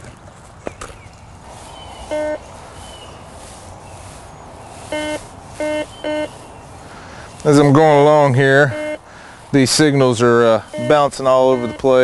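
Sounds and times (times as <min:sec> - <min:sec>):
metal detector beeps: 0:02.0 - 0:02.5, 0:04.8 - 0:06.4, 0:08.0 - 0:09.0, 0:10.5 - 0:12.0.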